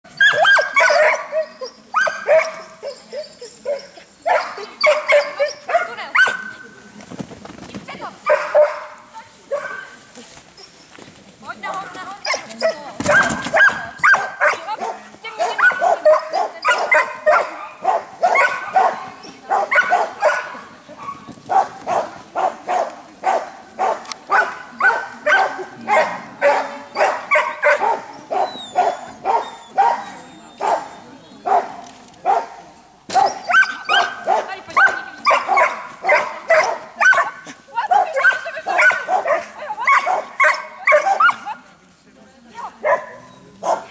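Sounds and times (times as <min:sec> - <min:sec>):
dog yipping: 0:00.1 - 0:06.5, 0:12.2 - 0:22.0, 0:22.8 - 0:31.6, 0:33.1 - 0:41.6.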